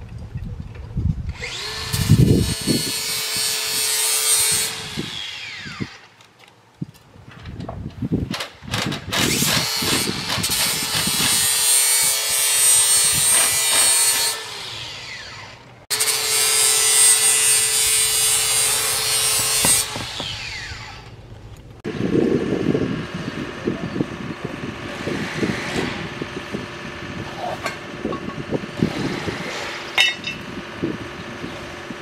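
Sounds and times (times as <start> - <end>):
cordless drill running: 1.3 - 3.9.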